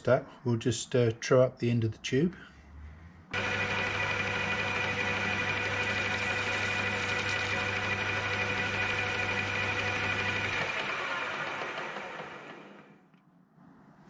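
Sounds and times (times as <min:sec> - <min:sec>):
metal lathe humming and whining: 0:03.4 - 0:12.8.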